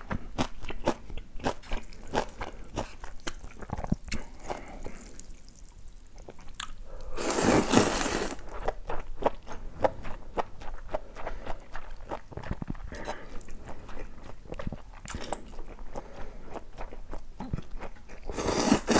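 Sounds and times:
wet chewing with mouth clicks: 0.0 - 18.9
slurp of noodles: 7.1 - 8.4, 18.3 - 18.9.

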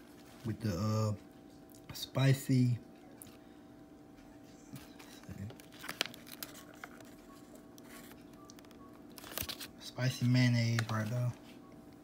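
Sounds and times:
faint steady hum: 0.0 - 12.0
paper wrapper crinkling: 4.8 - 11.4.

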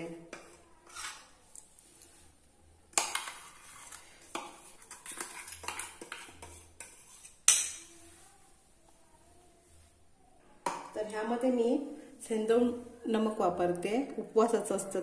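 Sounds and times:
steel spoon scraping metal jar: 0.3 - 1.4, 3.0 - 7.9.

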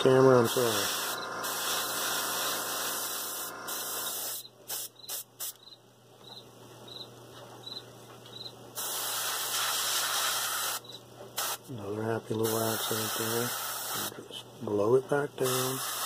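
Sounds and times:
airbrush hissing: 0.4 - 5.6, 8.8 - 10.8, 11.4 - 11.6, 12.4 - 14.1, 15.4 - 16.0.

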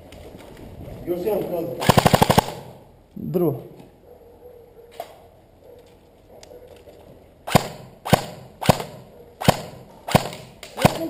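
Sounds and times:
airsoft rifle shots: 1.7 - 2.8, 7.4 - 11.0.

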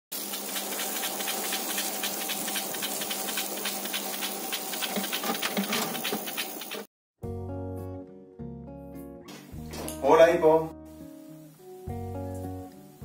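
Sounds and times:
film projector hiss and hum: 0.1 - 6.9
rapid projector clicking: 0.3 - 6.9.

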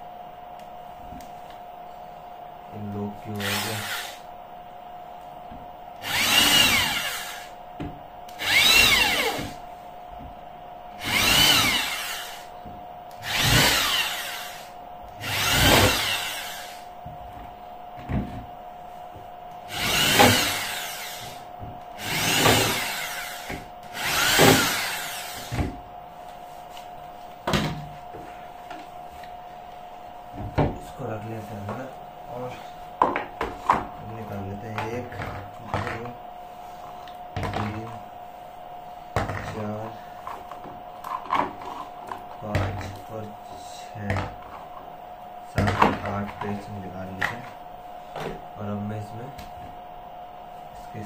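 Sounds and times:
electric drill spinning: 3.3 - 4.3, 6.0 - 7.6, 8.3 - 9.6, 11.0 - 12.5, 13.1 - 16.9, 19.7 - 25.8.

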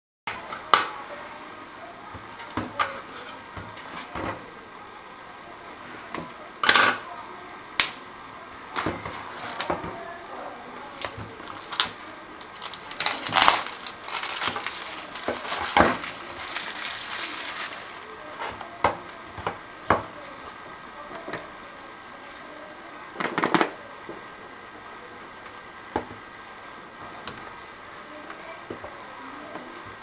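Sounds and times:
scissors cutting plastic: 8.6 - 10.0, 10.9 - 17.8
plastic film crinkling: 8.6 - 10.2, 10.9 - 18.1.

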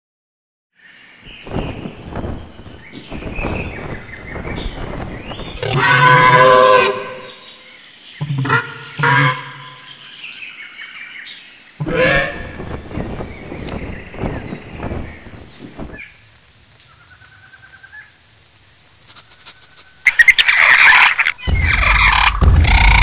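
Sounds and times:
nature ambience with chirps: 0.7 - 23.0
pterosaur calls: 5.6 - 7.3, 20.4 - 23.0.

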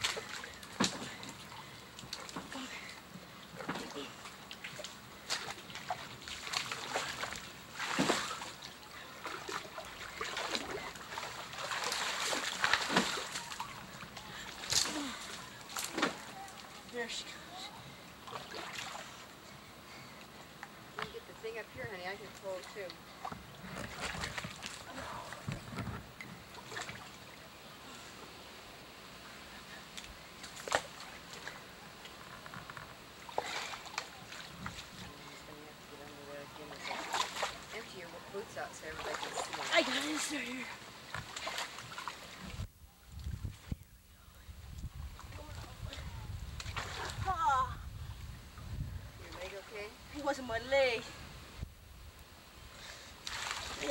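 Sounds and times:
water splashing as someone wades: 0.0 - 16.8, 18.2 - 19.3, 33.2 - 35.3, 36.7 - 37.8, 38.6 - 42.6, 53.1 - 53.9
water splashing and sloshing: 0.0 - 43.8, 44.8 - 53.9
branches dragged through water: 3.6 - 19.4, 21.0 - 27.2, 30.3 - 43.8, 44.8 - 51.7, 52.8 - 53.9.

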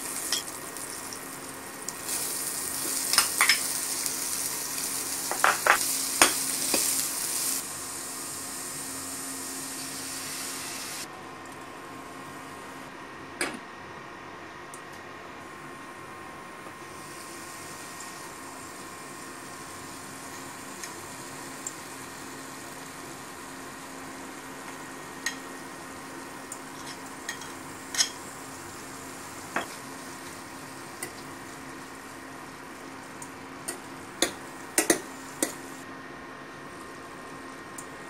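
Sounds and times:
food sizzling in a pan: 0.0 - 11.1, 16.8 - 35.8.

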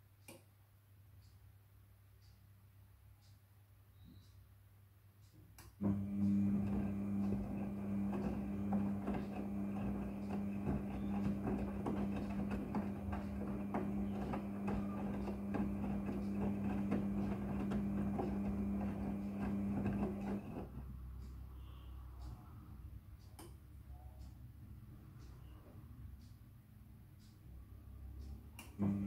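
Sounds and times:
washing machine motor hum: 5.8 - 21.0, 28.6 - 29.0.

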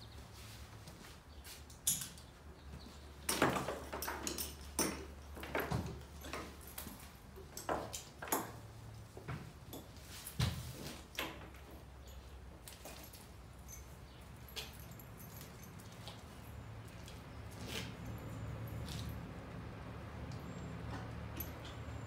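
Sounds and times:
horse tack knocking and clinking: 3.3 - 19.2, 20.4 - 22.0.

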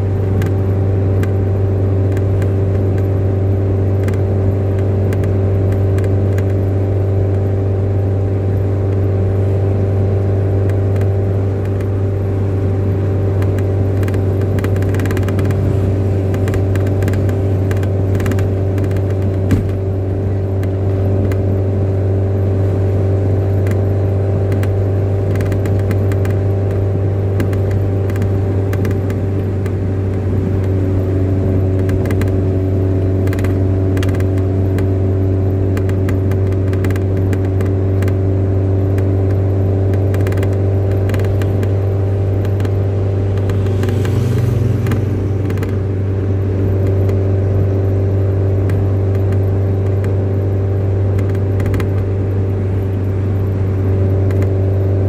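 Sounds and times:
low motor drone: 0.0 - 55.0
light clicks and rattles: 13.4 - 19.9, 23.6 - 31.0, 38.9 - 45.8.

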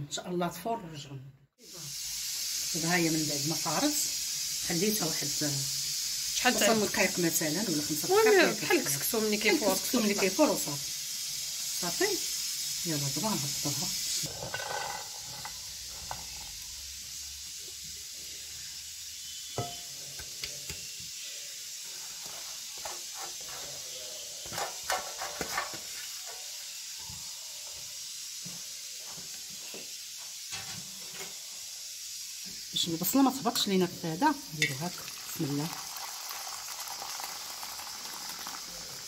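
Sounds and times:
steady hiss: 1.6 - 39.0
kitchenware taps and clinks: 19.6 - 20.9.

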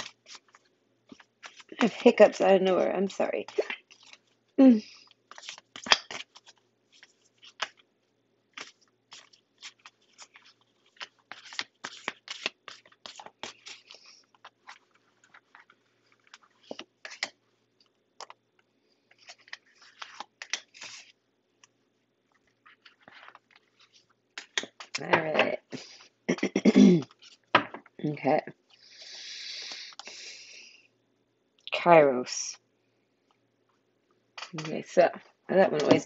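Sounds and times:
cards being shuffled: 0.0 - 2.4, 3.1 - 4.3, 4.9 - 7.9, 8.5 - 17.4, 19.1 - 21.2, 22.6 - 25.8.

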